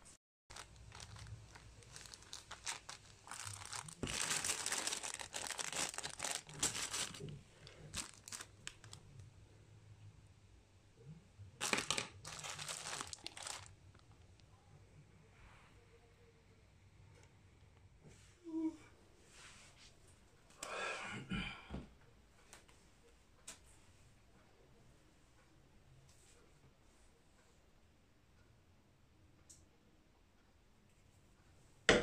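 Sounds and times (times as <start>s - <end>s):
plastic packaging crinkling: 0.5s - 9.0s, 11.6s - 14.2s.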